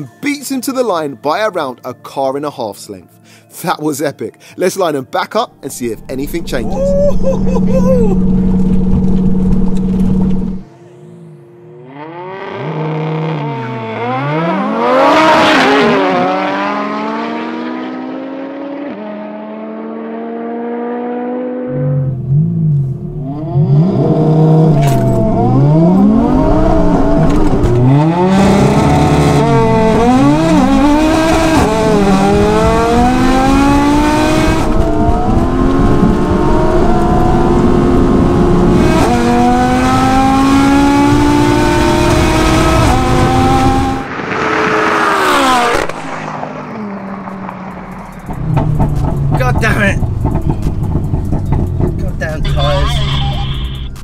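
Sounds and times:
rumbling cabin sound: 5.7s - 10.6s, 48.0s - 52.6s
car engines accelerating through gears: 5.8s - 54.0s.

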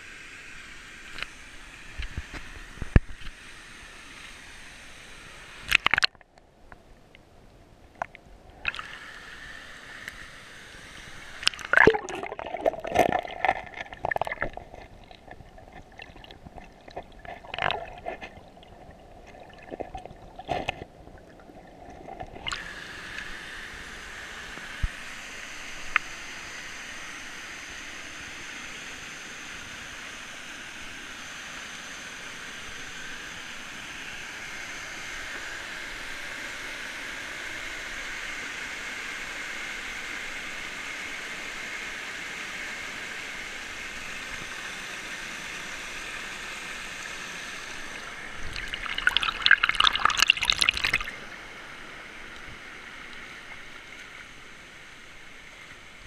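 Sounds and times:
underwater gurgling and sloshing: 0.4s - 28.8s, 43.5s - 56.0s.

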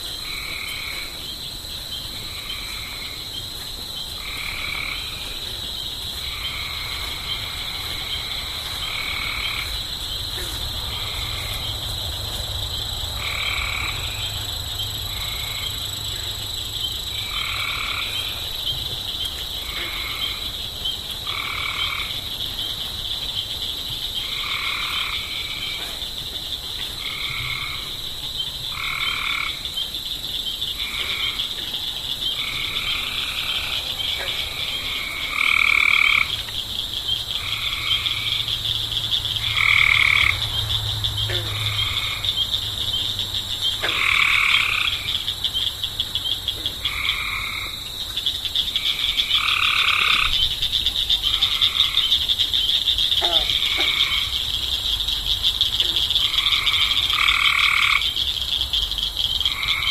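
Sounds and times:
frogs croaking: 0.0s - 59.9s.

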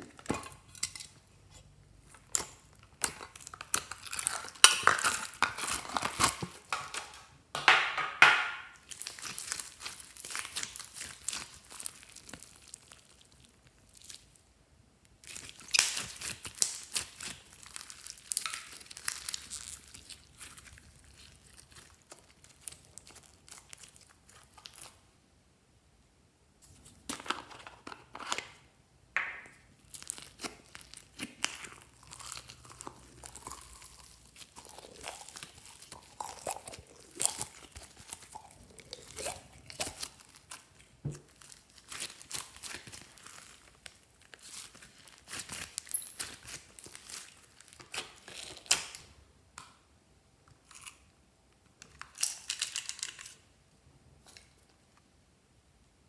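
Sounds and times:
slime crackling and popping: 2.0s - 14.4s, 15.1s - 25.0s, 29.2s - 49.2s.

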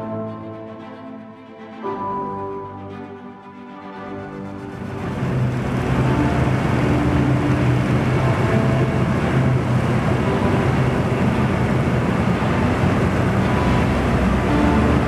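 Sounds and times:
combine harvester engine running: 4.7s - 15.0s.

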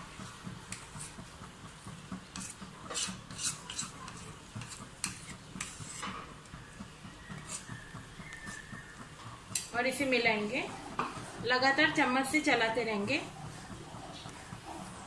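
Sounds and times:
spoon scraping plastic bowl: 2.3s - 6.3s, 7.3s - 8.8s.

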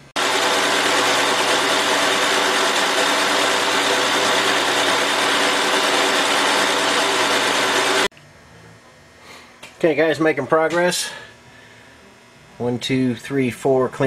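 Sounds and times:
boring machine whine: 0.0s - 9.0s.

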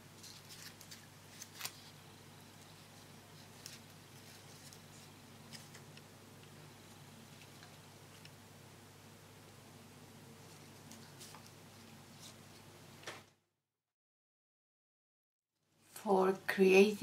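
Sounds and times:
low steady hum: 0.0s - 13.3s
wafer paper crackling: 0.2s - 2.0s, 2.6s - 6.0s.

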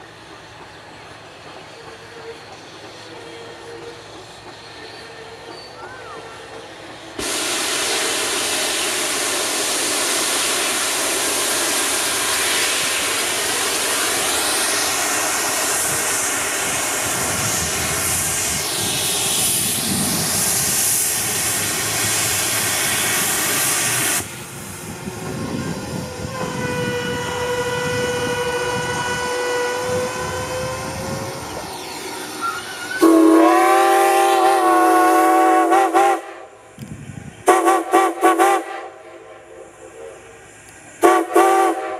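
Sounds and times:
steam hissing: 0.0s - 41.9s
steam locomotive whistle: 25.3s - 31.4s, 32.4s - 36.6s, 37.4s - 40.4s, 41.0s - 41.9s.

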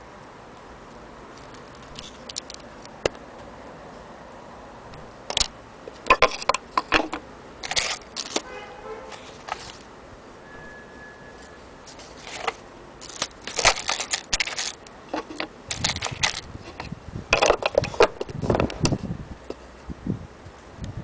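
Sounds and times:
wooden box lid clicking and knocking: 5.3s - 7.2s.

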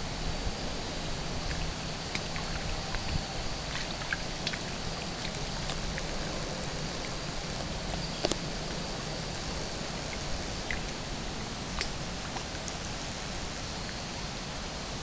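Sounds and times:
outdoor noise: 0.0s - 15.0s.

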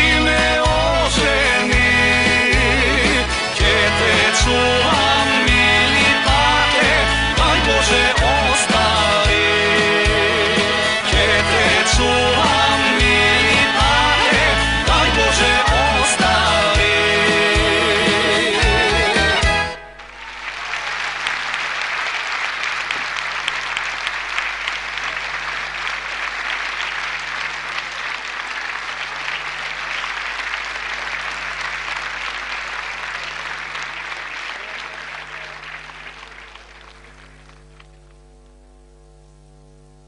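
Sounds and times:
audience applauding: 2.3s - 38.4s
steady electrical hum: 19.8s - 40.0s.

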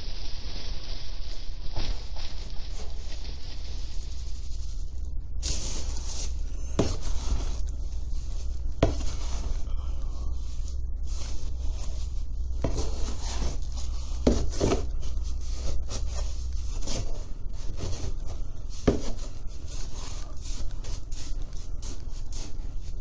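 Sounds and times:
cat litter scraping: 10.3s - 23.0s.

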